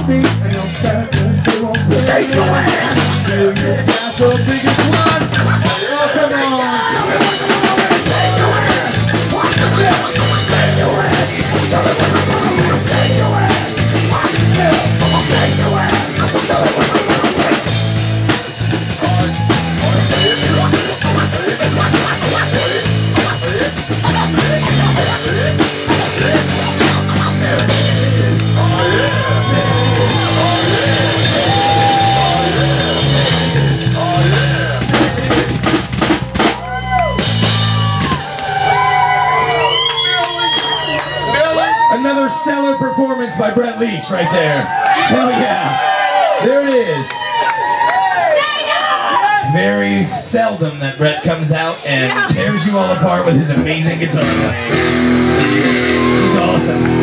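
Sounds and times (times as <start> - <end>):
guitar lead with bending notes: 0.0 - 40.0, 53.3 - 57.0
live rock band playing: 0.0 - 43.6, 51.8 - 57.0.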